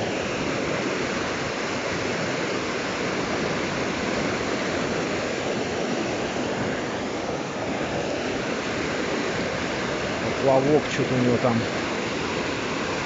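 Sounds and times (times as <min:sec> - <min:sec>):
fast-moving water rushing: 0:00.0 - 0:13.0.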